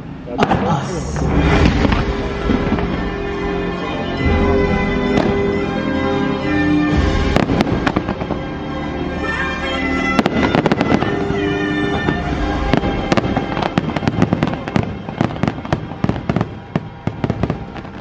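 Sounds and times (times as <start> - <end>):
fireworks bursts and crackles: 0.0 - 18.0
music: 0.0 - 18.0.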